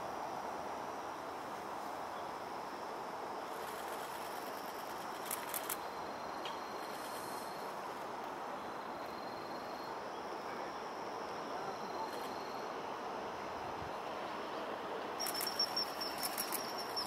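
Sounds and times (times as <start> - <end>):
cricket trilling: 2.1 - 17.0
sharp high clicks: 15.2 - 17.0.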